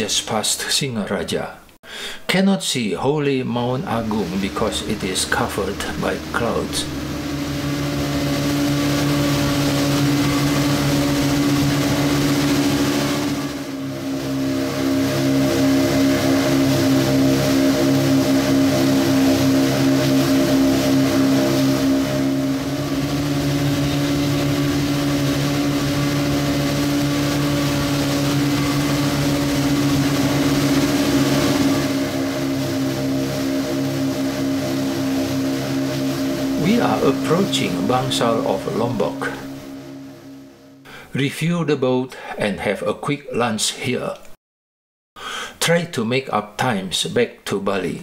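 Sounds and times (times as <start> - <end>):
water and wind rushing: 3.2 - 40.8
outboard engine running: 3.2 - 41.0.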